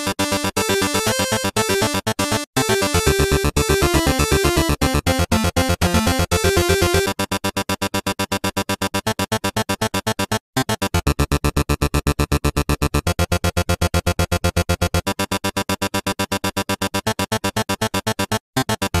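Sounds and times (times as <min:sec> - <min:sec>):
pulsing synthesizer chords: 0:02.6 - 0:07.1.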